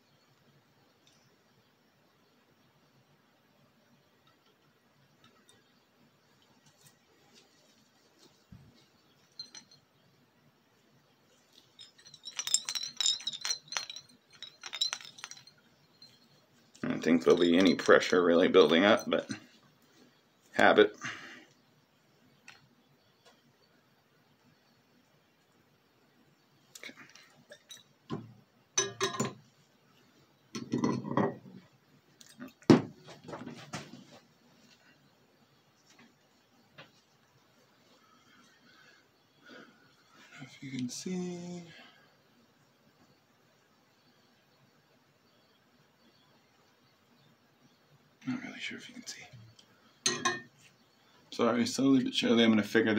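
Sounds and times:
glass stopper clinking: 0:09.3 - 0:09.8, 0:11.5 - 0:19.5, 0:26.8 - 0:28.2, 0:28.8 - 0:29.4, 0:30.6 - 0:31.5, 0:50.0 - 0:50.5.

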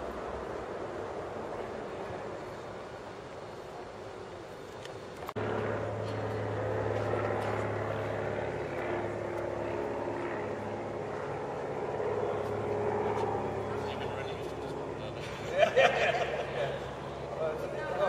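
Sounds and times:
engine droning: 0:05.0 - 0:18.0.

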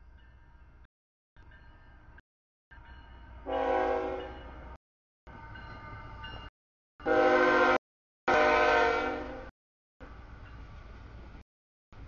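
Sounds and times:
locomotive air horn blasts: 0:03.4 - 0:04.4, 0:07.0 - 0:09.5.

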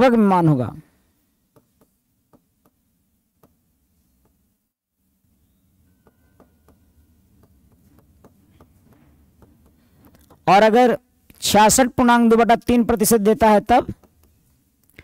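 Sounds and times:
marker tapping on whiteboard: 0:01.5 - 0:03.6, 0:04.2 - 0:04.5, 0:06.0 - 0:10.6, 0:13.8 - 0:14.5.

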